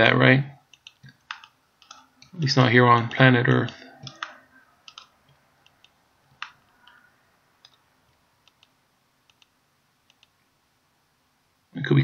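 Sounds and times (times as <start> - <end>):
computer mouse button clicks: 8.4 - 8.7.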